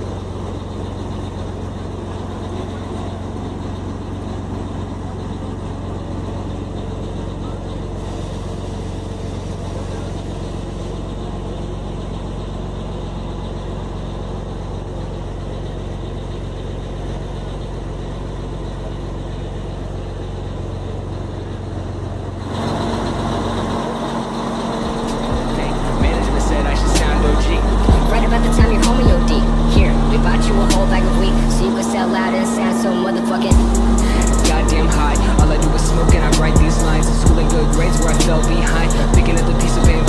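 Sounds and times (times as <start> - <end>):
truck diesel engine idling: 0.0 - 40.0.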